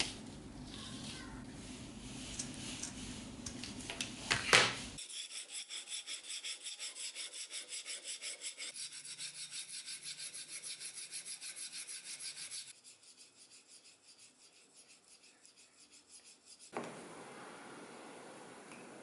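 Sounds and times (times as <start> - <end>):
knife rasping on sharpening stone: 5.0 - 16.7.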